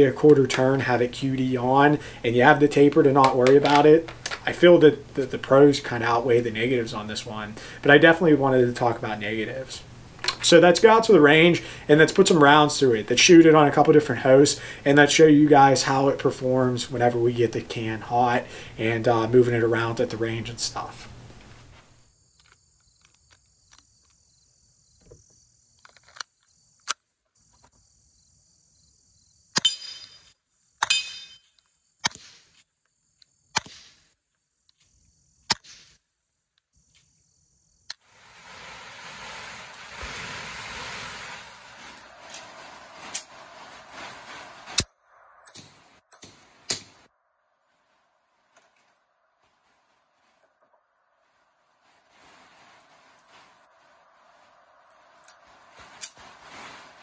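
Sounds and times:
gun handling clicks: 3.2s - 4.5s, 10.2s - 10.4s
rain on a metal roof: 38.0s - 47.1s, 47.7s - 57.0s.

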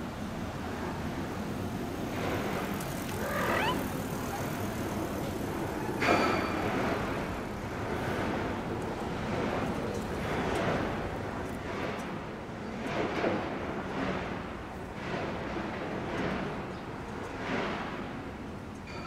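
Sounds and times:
construction work noise: 0.0s - 19.0s
street noise: 0.0s - 19.0s
brief rising cry: 3.1s - 4.5s.

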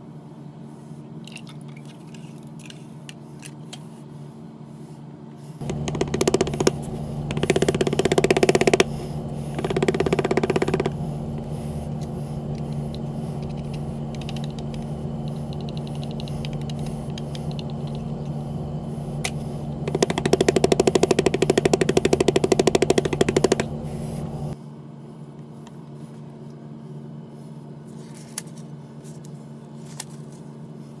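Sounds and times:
low hum: 5.6s - 24.6s.

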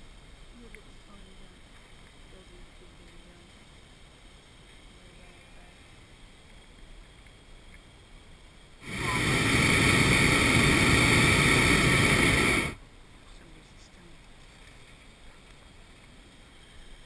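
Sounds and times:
propane burner blast: 8.8s - 12.8s.

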